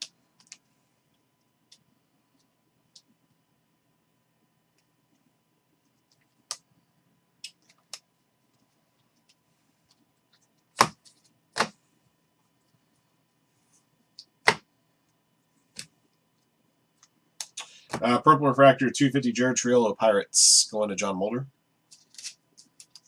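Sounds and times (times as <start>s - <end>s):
trading cards snapping: 14.2s - 14.6s.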